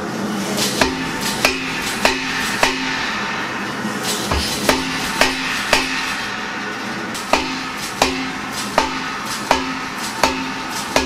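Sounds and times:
hammer striking hot steel: 0.6s - 11.0s.

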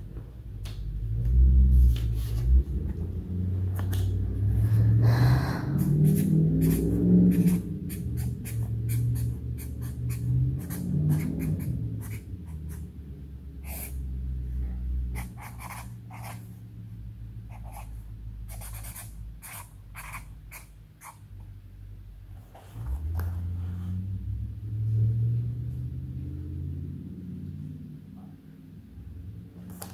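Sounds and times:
low hum: 0.0s - 19.5s
marker scratching on paper: 5.8s - 12.9s, 13.6s - 14.0s, 15.1s - 16.5s, 17.5s - 21.2s.

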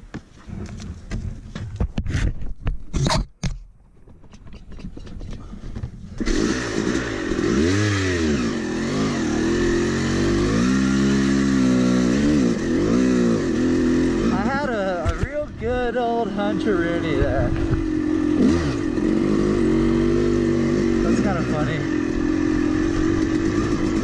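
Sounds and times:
sharp knocks and clatters: 1.1s - 6.1s
dirt bike engine revving: 6.2s - 15.2s, 15.8s - 24.0s.

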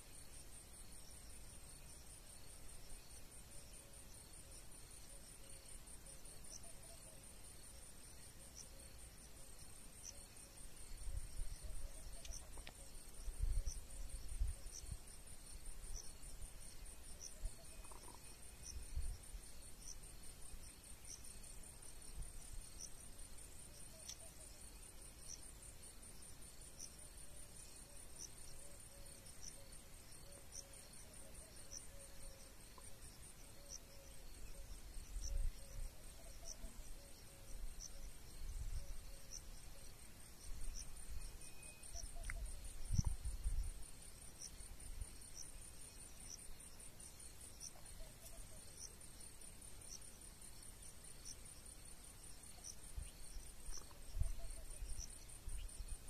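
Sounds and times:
insects trilling: 0.0s - 56.0s
sharp insect chirp: 0.0s - 56.0s.

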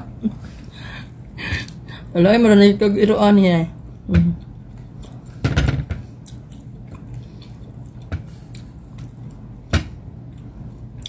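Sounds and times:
person chewing meat: 6.1s - 9.6s.

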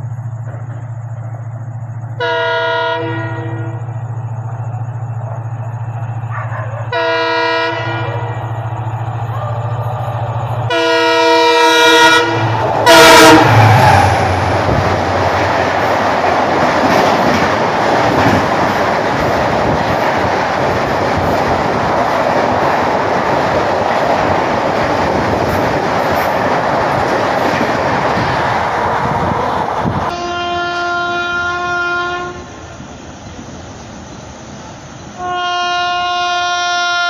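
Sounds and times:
train wheels rushing on rails: 0.0s - 37.0s
locomotive horn blasts: 2.2s - 3.9s, 6.9s - 8.5s, 10.7s - 13.6s, 30.1s - 32.6s, 35.2s - 37.0s.

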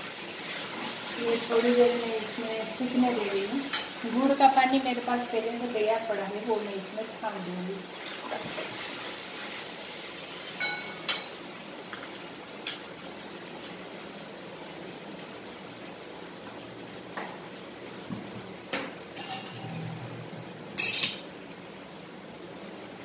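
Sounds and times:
metal spatula clinking on pan: 10.6s - 11.4s, 20.8s - 21.2s.

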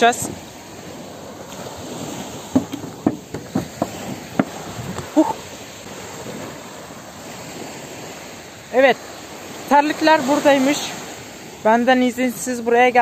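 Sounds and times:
surf hissing: 0.0s - 13.0s
sharp clicks and knocks: 2.5s - 5.1s.

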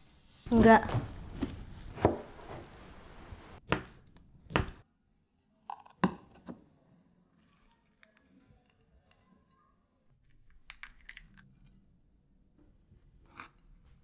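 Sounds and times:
knife chopping on cutting board: 1.4s - 2.6s, 3.6s - 4.8s.

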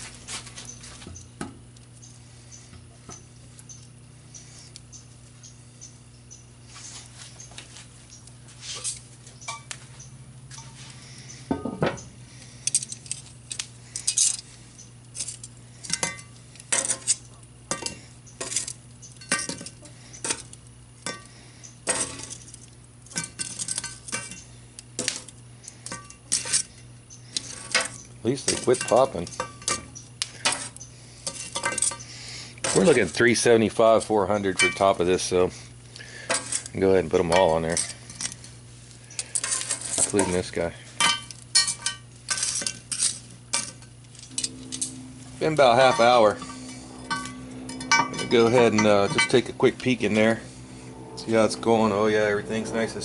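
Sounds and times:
metal tongs clinking on iron lid: 15.2s - 21.3s, 23.1s - 26.7s, 27.4s - 33.2s, 34.6s - 35.0s, 39.3s - 49.9s.

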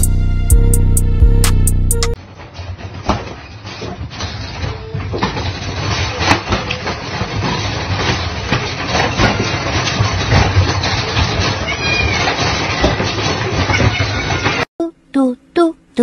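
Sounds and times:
wire crate rattling: 2.6s - 14.7s.

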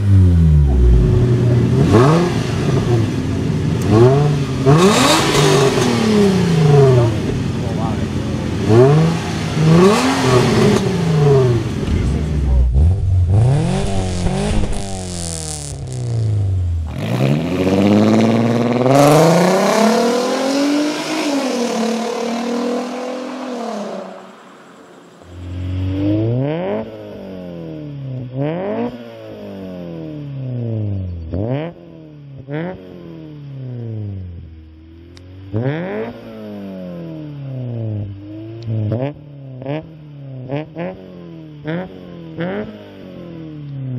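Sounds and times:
car engine idling with throttle blips: 0.0s - 14.2s
car engine revving hard: 0.0s - 24.6s.

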